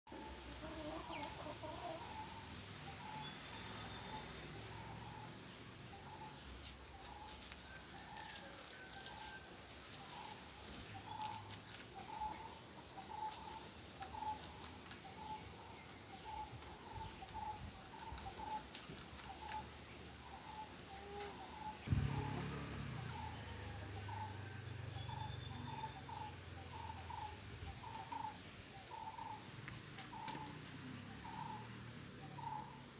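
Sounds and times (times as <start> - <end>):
rabbits chewing greens: 0.1 - 32.9
thump: 21.8 - 23.2
low rumble: 21.8 - 27.3.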